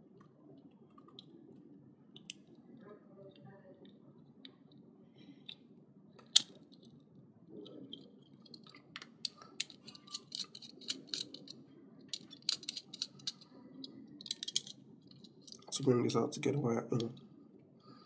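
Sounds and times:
small irregular clicks and taps: 0:02.1 - 0:02.6, 0:07.7 - 0:15.7.

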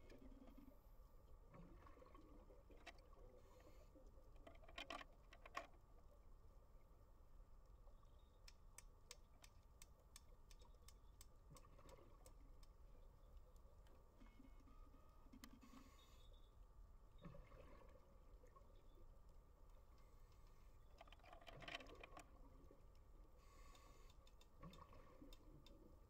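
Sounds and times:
sharp underwater clicks: 0:08.1 - 0:14.0, 0:19.9 - 0:25.9.

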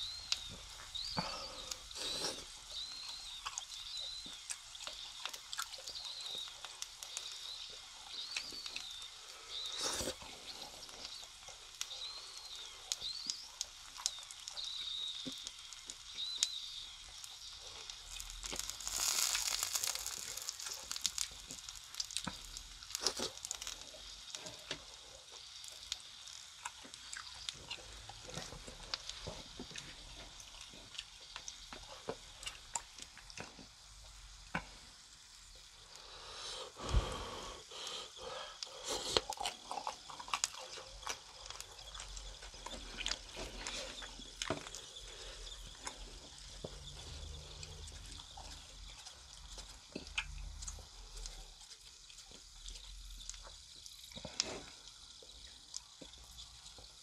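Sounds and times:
wet chewing: 0:00.1 - 0:33.8, 0:37.7 - 0:56.0.

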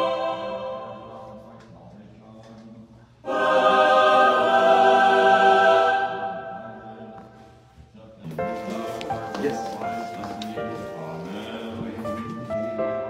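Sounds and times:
choir holding a chord: 0:00.0 - 0:01.6, 0:03.2 - 0:07.3.

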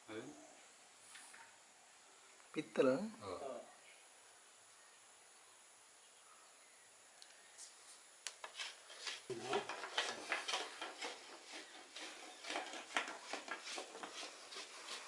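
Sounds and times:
brass rod scraping cinnamon stem: 0:08.4 - 0:15.0.

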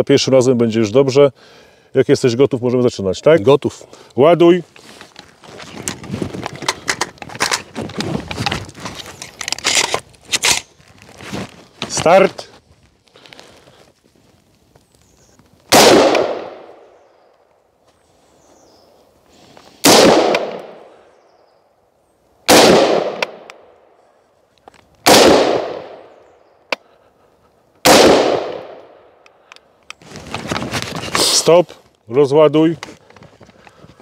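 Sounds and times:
rifle shots: 0:15.7 - 0:16.8, 0:19.8 - 0:20.9, 0:22.5 - 0:23.5, 0:25.0 - 0:26.0, 0:27.8 - 0:29.0.

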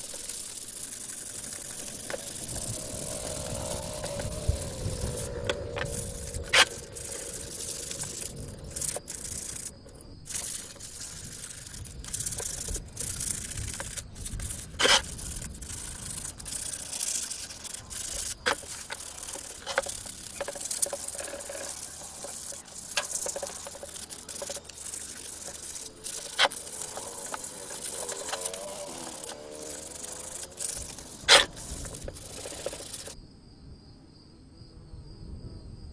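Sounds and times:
sandpaper rubbing metal: 0:00.0 - 0:33.2
sharp clicks: 0:00.0 - 0:33.2.

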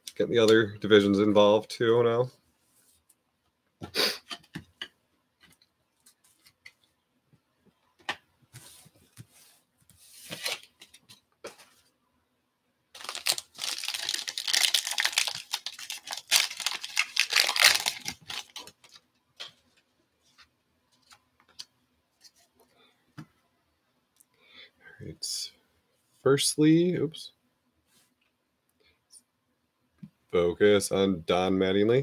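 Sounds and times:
wrapper crinkling and tearing: 0:13.0 - 0:19.0
cards clicking and rustling: 0:13.0 - 0:19.6.

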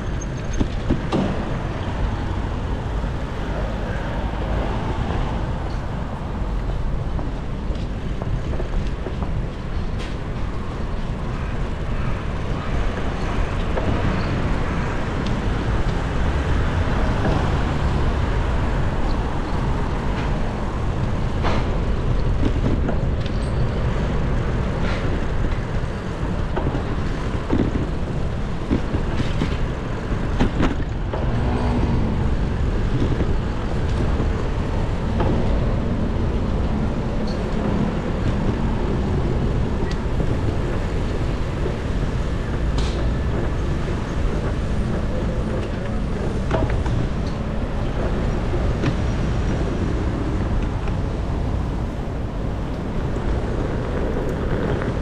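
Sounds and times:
bicycle tyres on wet road: 0:00.0 - 0:55.0
motor traffic passing: 0:00.0 - 0:55.0
wind on microphone: 0:00.0 - 0:55.0.

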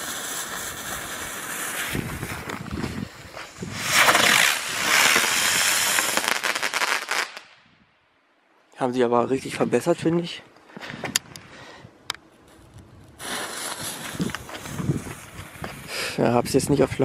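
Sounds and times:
firework spinner hissing: 0:00.0 - 0:07.5, 0:13.2 - 0:16.2
firework crackling: 0:00.0 - 0:07.7, 0:12.4 - 0:16.3.

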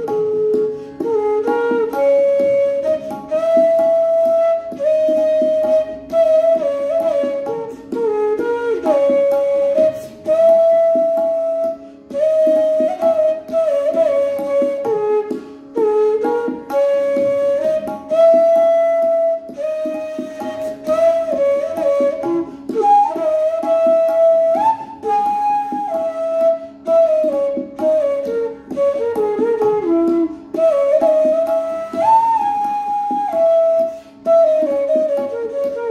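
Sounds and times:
bamboo flute melody: 0:00.0 - 0:35.9
flute player breathing: 0:00.7 - 0:01.1, 0:09.9 - 0:10.2, 0:11.8 - 0:12.1, 0:15.3 - 0:15.8, 0:22.5 - 0:22.7, 0:30.3 - 0:30.6, 0:33.9 - 0:34.3.

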